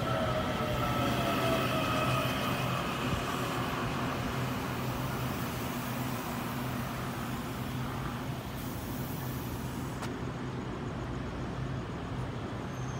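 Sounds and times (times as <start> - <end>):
electric train humming: 0.0 - 9.8.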